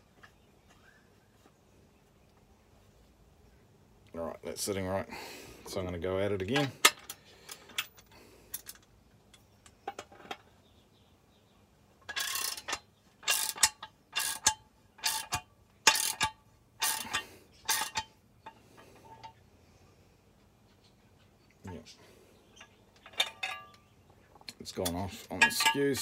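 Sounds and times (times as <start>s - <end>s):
hand tool cranking a nut: 12.0s - 19.4s, 24.7s - 26.0s.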